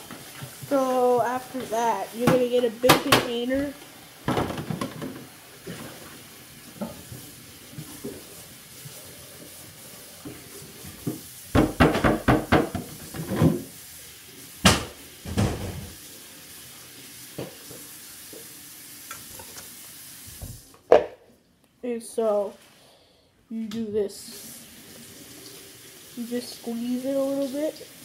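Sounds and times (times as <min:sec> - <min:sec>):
plastic containers knocking: 0:04.3 - 0:05.3, 0:11.6 - 0:13.6.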